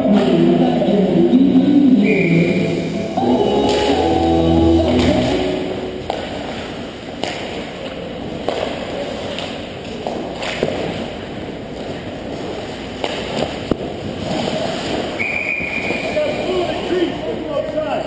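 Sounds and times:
referee's whistle: 0:02.0 - 0:02.7, 0:15.2 - 0:16.4.

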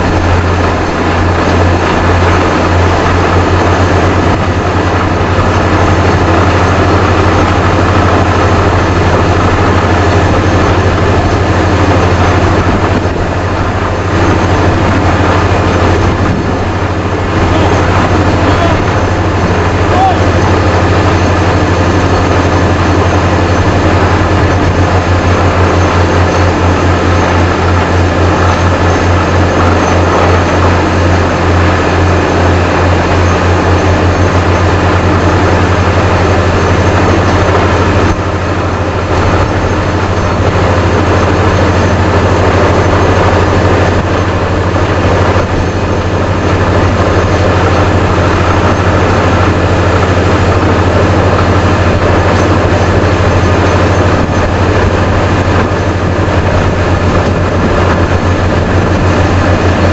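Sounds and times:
heavy diesel engine drone: 0:00.0 - 0:59.9.

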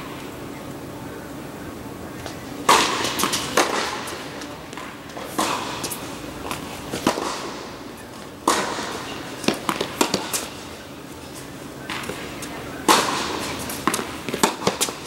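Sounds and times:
rackets hitting tennis balls: 0:02.1 - 0:15.0
tennis ball bouncing: 0:02.6 - 0:07.5, 0:08.4 - 0:10.6, 0:12.8 - 0:15.0.

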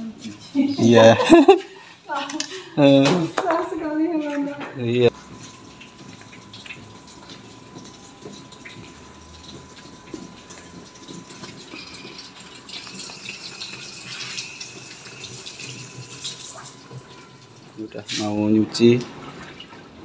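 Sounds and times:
water gushing into washing machine: 0:05.1 - 0:20.0.

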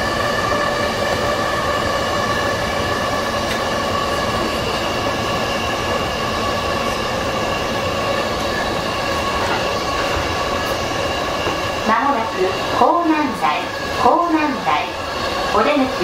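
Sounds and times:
electric train running noise: 0:00.0 - 0:16.0.

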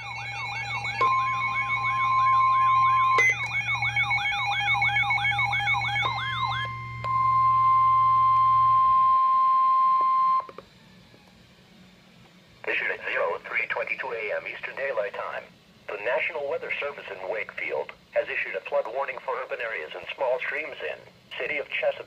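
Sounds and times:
steady alarm tone: 0:00.0 - 0:10.5
warbling siren alerts: 0:00.0 - 0:11.1.

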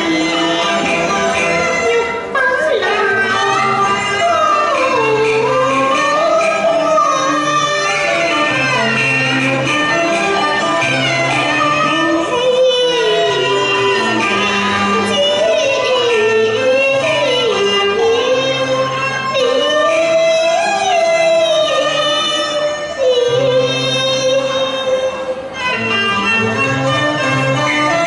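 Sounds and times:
instrumental ensemble: 0:00.0 - 0:28.0
woman singing opera: 0:01.7 - 0:08.4, 0:10.3 - 0:25.3.

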